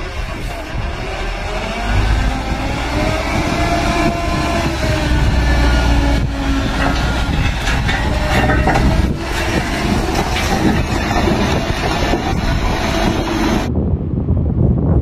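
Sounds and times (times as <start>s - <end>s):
diesel truck engine labouring: 0.0s - 13.7s
truck body knocks and rattles: 1.7s - 13.7s.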